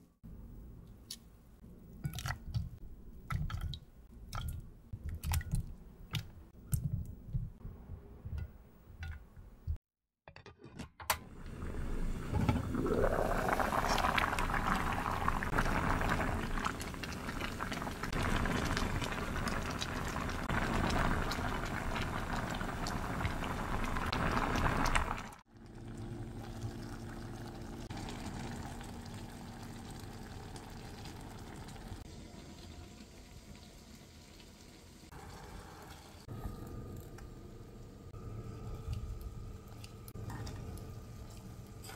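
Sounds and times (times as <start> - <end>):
liquid boiling and bubbling: 11.3 - 41.9.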